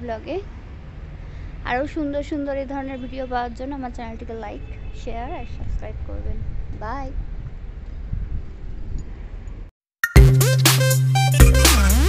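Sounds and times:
wind buffeting microphone: 0:05.4 - 0:09.6.

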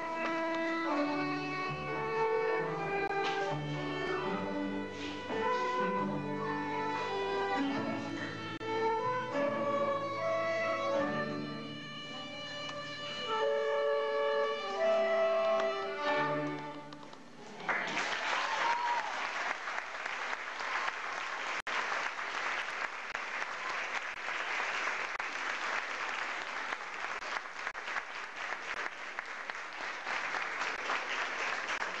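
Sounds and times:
string orchestra with solo violin: 0:00.0 - 0:17.0
audience applause: 0:17.4 - 0:32.0.

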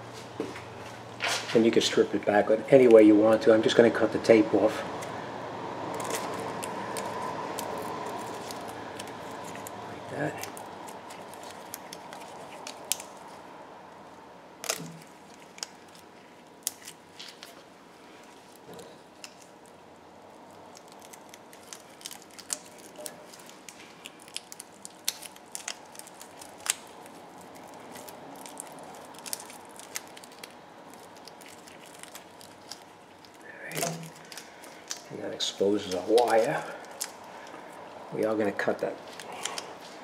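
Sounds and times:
faint steady hum: 0:00.0 - 0:40.0
tape and wire clicks and snips: 0:06.0 - 0:13.3, 0:14.6 - 0:17.6, 0:20.7 - 0:35.1.

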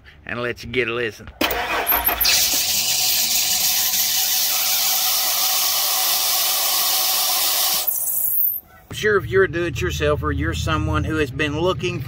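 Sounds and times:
engine running: 0:01.4 - 0:05.4
high-pitched belt screech: 0:01.4 - 0:08.6.

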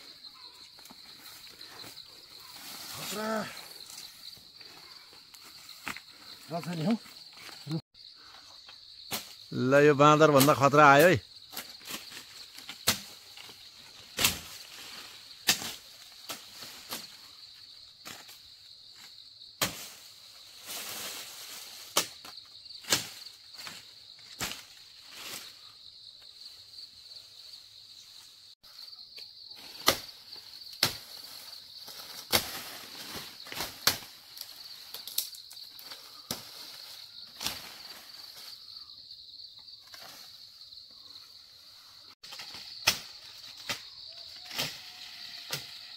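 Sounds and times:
leaves rustling: 0:00.0 - 0:07.8, 0:11.5 - 0:28.6, 0:29.5 - 0:38.9
high insect drone: 0:00.0 - 0:45.9
branches cracking: 0:29.6 - 0:38.2.

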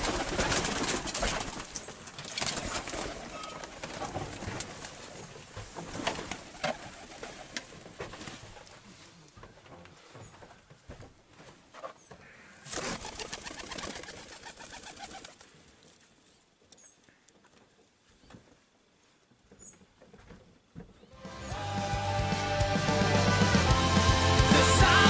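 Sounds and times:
pigeon wings flapping: 0:00.0 - 0:05.1, 0:05.8 - 0:08.7, 0:12.7 - 0:15.5
music: 0:21.1 - 0:25.0.

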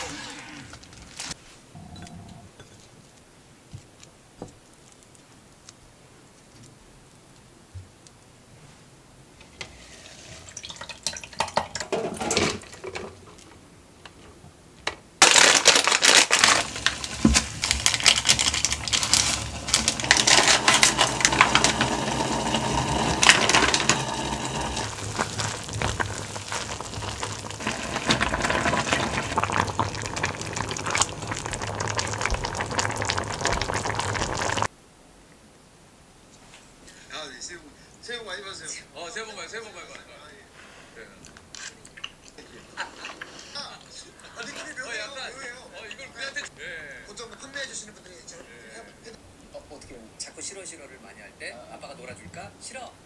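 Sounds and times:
soup bubbling in pot: 0:16.6 - 0:34.7.

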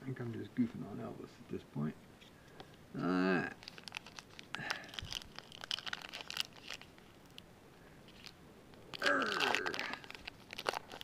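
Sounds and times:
paper wrapper crinkling and tearing: 0:03.5 - 0:07.4, 0:08.1 - 0:11.0
cards rustling: 0:03.6 - 0:07.4, 0:08.0 - 0:11.0.

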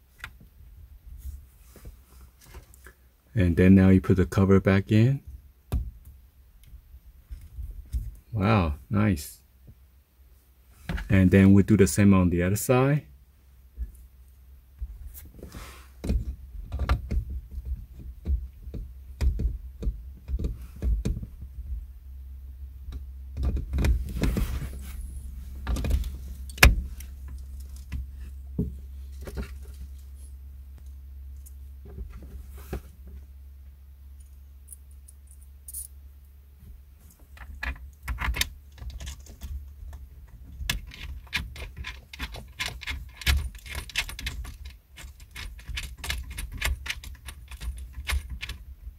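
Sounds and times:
low steady rumble: 0:00.0 - 0:48.9
metal bracket and screws clinking: 0:40.6 - 0:48.6.

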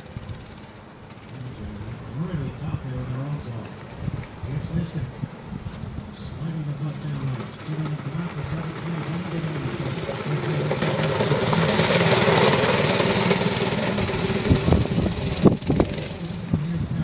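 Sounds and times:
go-kart engine passing: 0:00.0 - 0:17.0.

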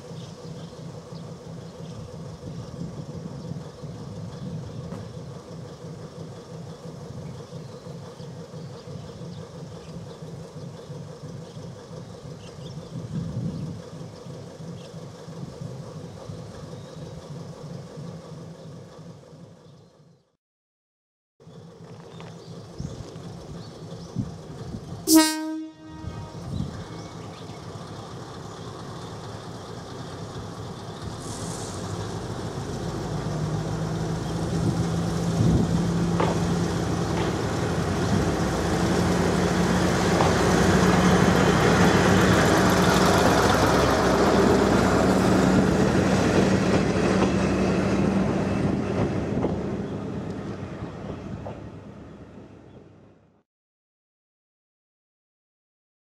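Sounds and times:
diesel railcar engine: 0:00.0 - 0:20.4, 0:21.4 - 0:53.4
train horn blast: 0:25.1 - 0:26.7.

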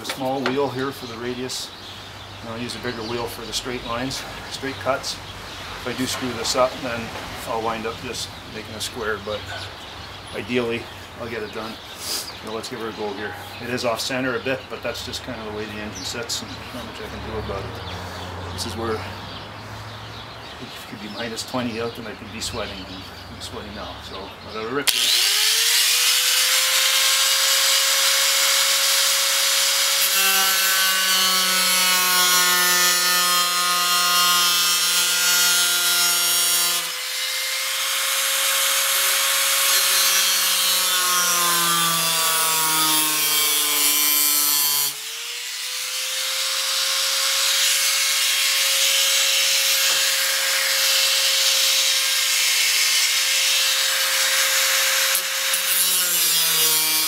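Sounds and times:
grinder cutting fiberglass: 0:24.9 - 0:57.0.

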